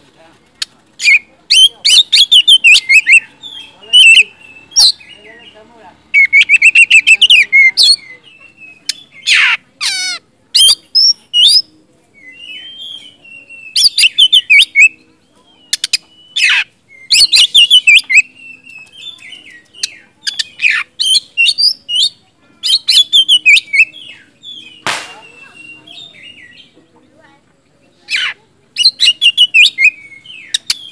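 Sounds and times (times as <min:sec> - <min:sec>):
bird singing whistled trills: 0:01.0 - 0:05.3, 0:06.2 - 0:09.4, 0:10.6 - 0:26.8, 0:28.1 - 0:30.9.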